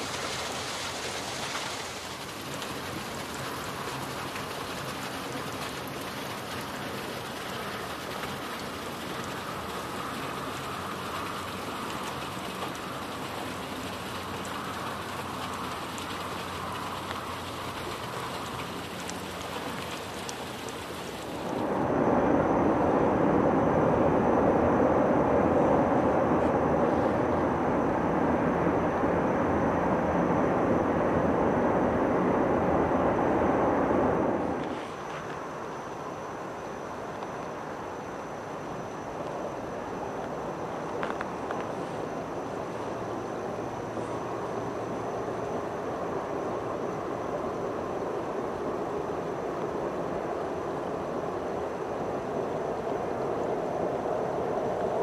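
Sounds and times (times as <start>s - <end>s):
stream water hissing: 0.0s - 22.0s, 34.4s - 55.0s.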